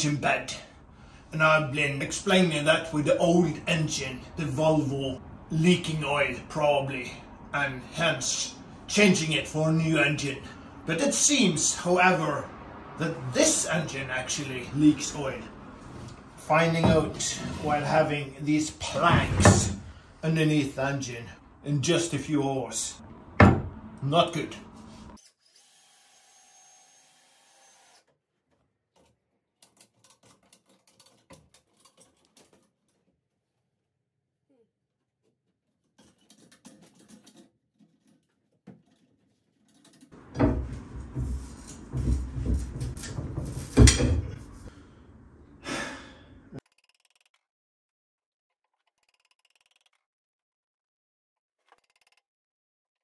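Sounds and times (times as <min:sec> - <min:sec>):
heavy straining breaths: 0:44.5 - 0:46.6
chain hoist ratchet clicks: 0:46.6 - 0:47.4, 0:48.8 - 0:50.0, 0:51.6 - 0:52.2.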